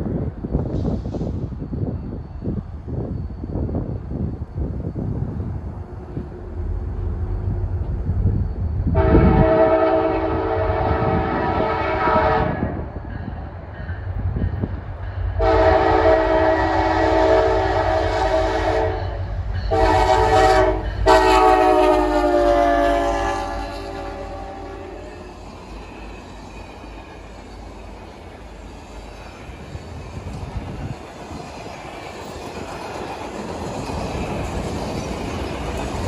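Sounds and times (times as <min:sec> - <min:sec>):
low rumble of train: 0:00.0 - 0:36.0
locomotive air horn blasts: 0:08.9 - 0:12.8, 0:15.4 - 0:25.2.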